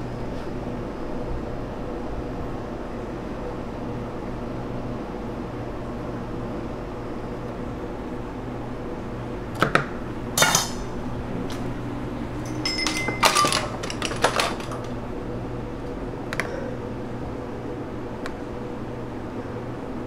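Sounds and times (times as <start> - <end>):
kitchen equipment hum: 7.2 - 20.0
dishes and utensils clinking: 10.4 - 11.0, 12.4 - 14.9.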